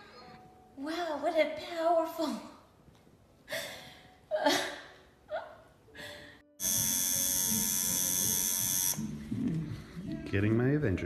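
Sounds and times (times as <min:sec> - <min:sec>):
electric tattoo machine buzzing: 0:06.6 - 0:09.1.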